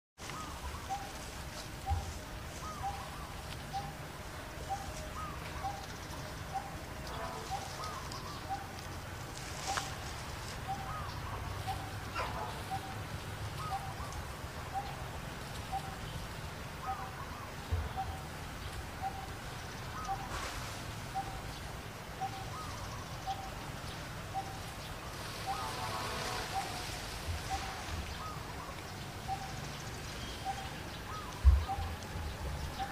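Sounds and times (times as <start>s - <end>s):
low outdoor hum: 0.2s - 32.9s
bird higher arching call: 25.4s - 29.6s.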